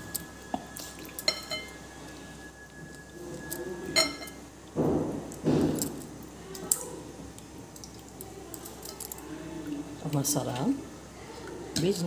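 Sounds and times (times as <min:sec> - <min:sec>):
light splashes and drips: 0:00.0 - 0:02.2, 0:05.8 - 0:12.0
sharp glass clink: 0:01.2 - 0:01.8, 0:03.5 - 0:04.4.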